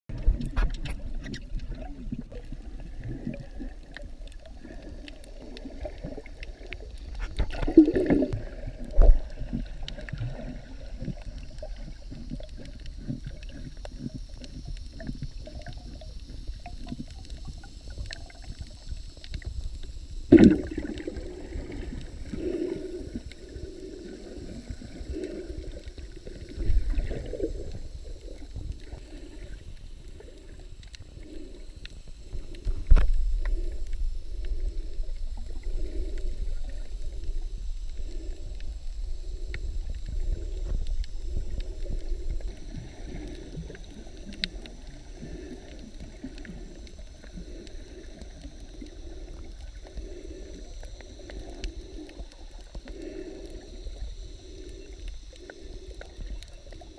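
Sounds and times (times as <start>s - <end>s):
muffled underwater noise: 0.1s - 56.9s.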